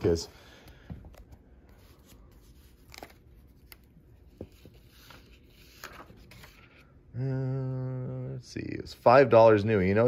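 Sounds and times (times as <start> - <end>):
paper rustling: 1.1 - 6.8.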